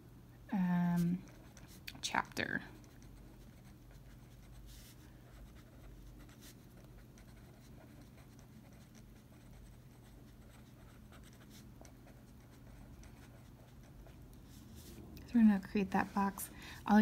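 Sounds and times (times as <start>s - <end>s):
steady low hum: 0.0s - 17.0s
pen scratching on paper: 2.8s - 15.0s.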